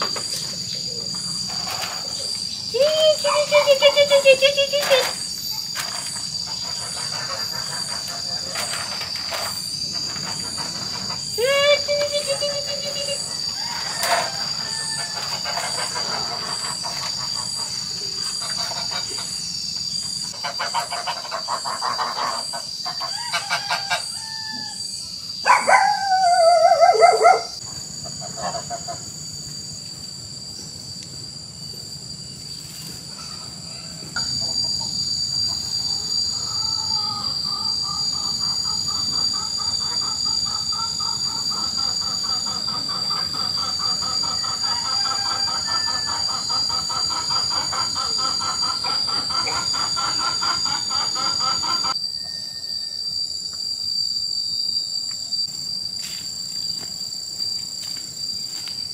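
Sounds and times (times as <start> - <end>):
high-pitched insect drone: 0.0 - 58.9
geese honking: 6.4 - 8.9, 13.8 - 19.4, 20.3 - 24.0.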